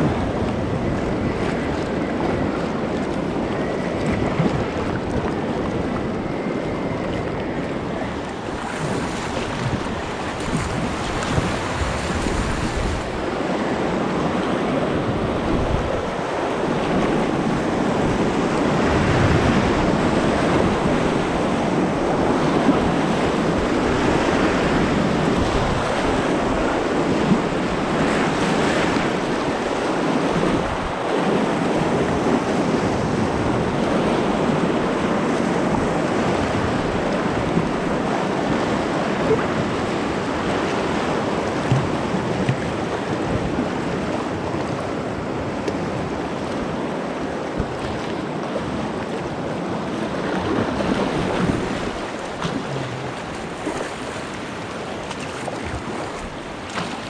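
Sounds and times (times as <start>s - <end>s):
wind buffeting microphone: 0.0s - 57.0s
whitewater rushing: 46.9s - 57.0s.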